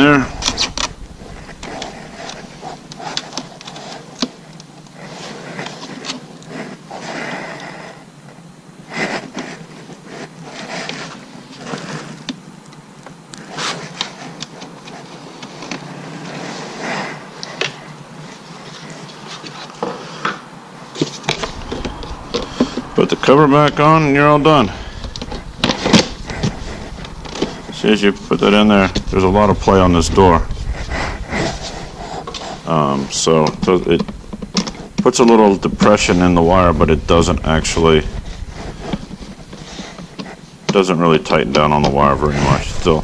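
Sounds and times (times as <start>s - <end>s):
fabric rubbing on microphone: 0.0s - 4.2s, 21.0s - 43.0s.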